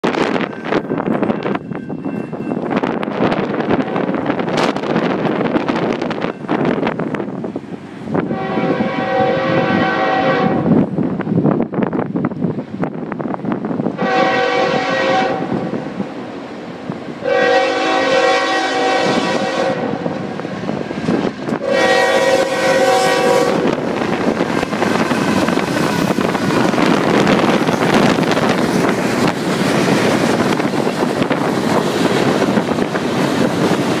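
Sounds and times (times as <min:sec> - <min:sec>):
freight train rumbling past: 0:00.0 - 0:34.0
locomotive air horn blasts: 0:08.3 - 0:10.7, 0:14.0 - 0:15.7, 0:17.2 - 0:20.2, 0:21.6 - 0:23.8.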